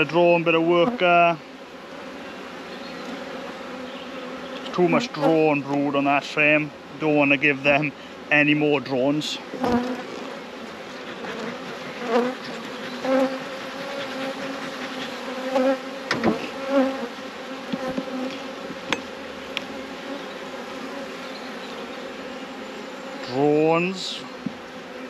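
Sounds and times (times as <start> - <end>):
honeybees buzzing: 0.0 - 25.0
hive tool clicking on wooden frames: 9.6 - 10.4, 11.1 - 19.8, 24.4 - 24.8.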